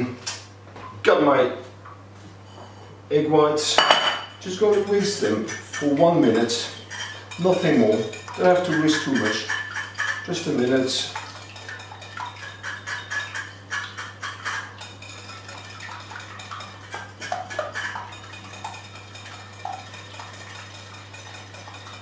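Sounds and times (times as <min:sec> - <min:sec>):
whisk clicking against glass bowl: 0:04.6 - 0:10.8.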